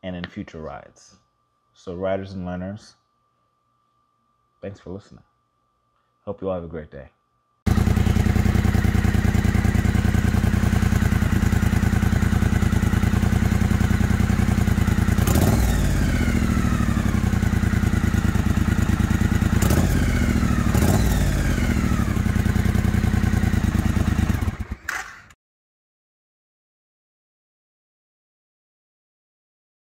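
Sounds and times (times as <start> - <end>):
engine revving from throttle blips: 7.7 - 24.8
motorcycle engine idling: 7.7 - 25.2.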